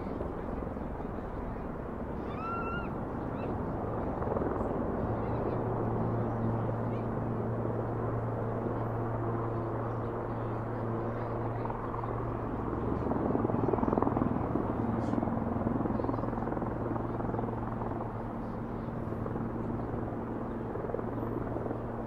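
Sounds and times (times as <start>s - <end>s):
helicopter droning: 0.0s - 22.0s.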